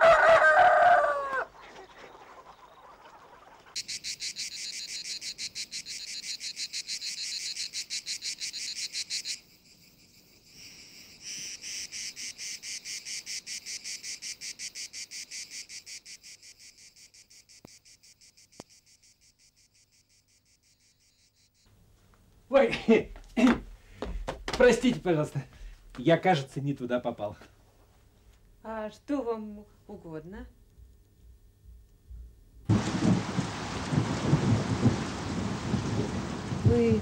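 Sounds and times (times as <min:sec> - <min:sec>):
crickets chirping: 0:03.7 - 0:21.7.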